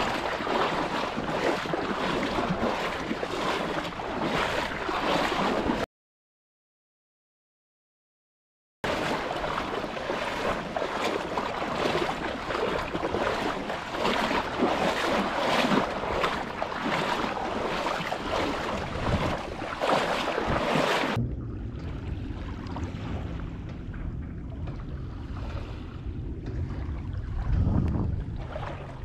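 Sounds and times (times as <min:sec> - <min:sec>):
seawater sloshing from wading: 0:00.0 - 0:05.8, 0:08.8 - 0:29.0
water lapping: 0:00.0 - 0:05.8, 0:08.8 - 0:29.0
wind on microphone: 0:18.2 - 0:29.0.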